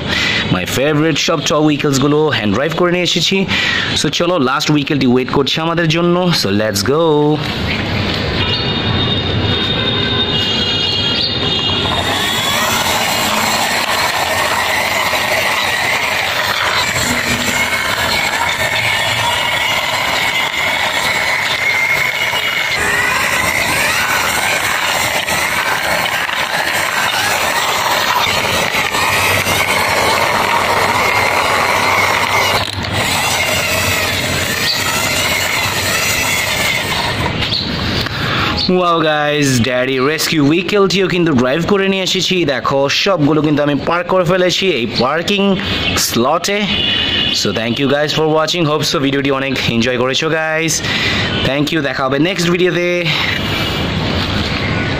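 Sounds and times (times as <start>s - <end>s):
toy truck wheels on concrete: 11.3s - 38.6s.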